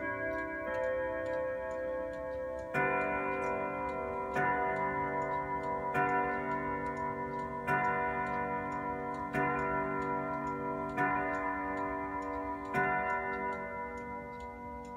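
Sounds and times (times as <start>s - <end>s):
clock chime striking: 0.0s - 14.9s
clock ticking: 0.0s - 14.9s.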